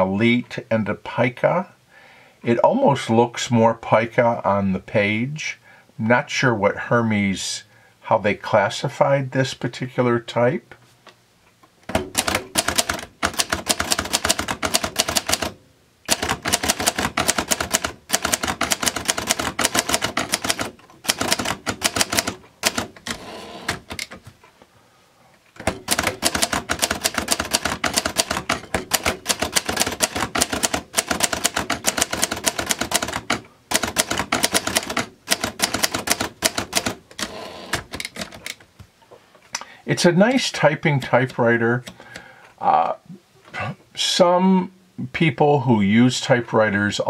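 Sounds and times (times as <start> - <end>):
manual typewriter typing: 11.9 - 24.2, 25.6 - 38.6.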